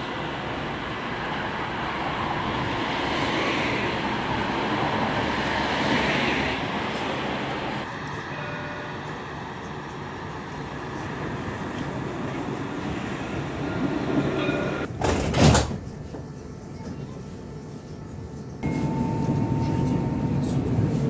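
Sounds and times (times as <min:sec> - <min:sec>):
tram rushing noise: 0:00.0 - 0:21.0
faint steady whine tones: 0:18.6 - 0:21.0.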